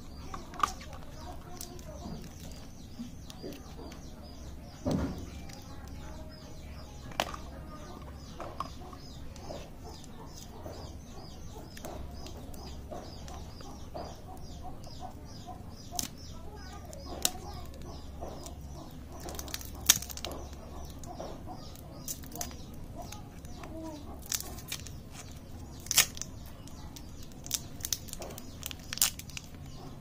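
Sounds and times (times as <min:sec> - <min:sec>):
birds chirping and clucking: 0:00.0 - 0:30.0
candy wrappers crinkling: 0:00.0 - 0:30.0.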